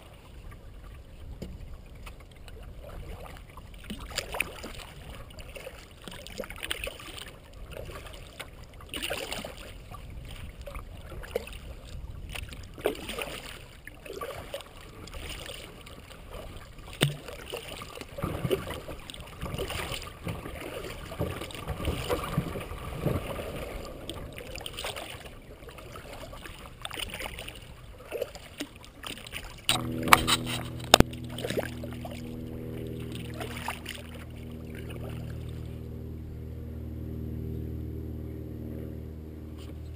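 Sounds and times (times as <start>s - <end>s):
kayak paddle strokes in water: 0.0s - 39.9s
steady low hum: 29.6s - 39.9s.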